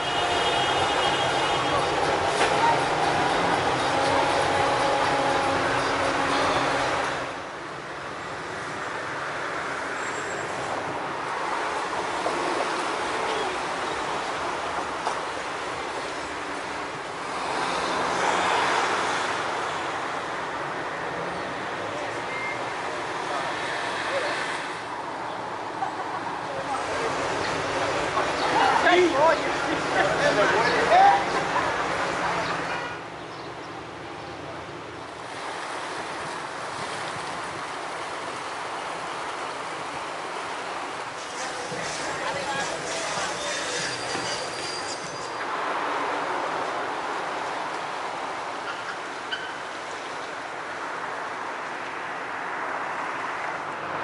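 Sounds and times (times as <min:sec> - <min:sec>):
cars driving past: 0:00.0 - 0:32.8.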